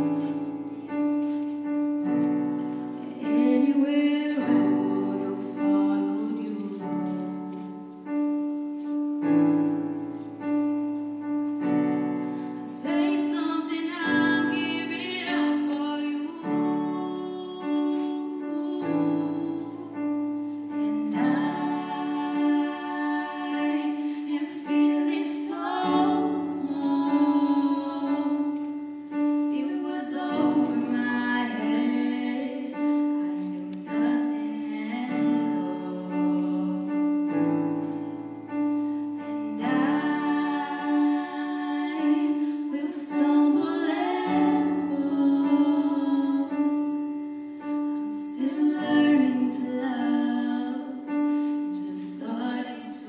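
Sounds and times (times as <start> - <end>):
person singing: 12.6 - 28.7, 29.5 - 37.3, 39.4 - 47.0, 48.1 - 53.0.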